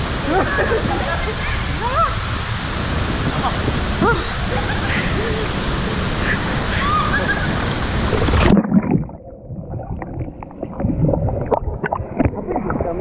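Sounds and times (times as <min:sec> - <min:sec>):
waterfall rushing water: 0:00.0 - 0:08.6
muffled underwater bubbling: 0:08.0 - 0:13.0.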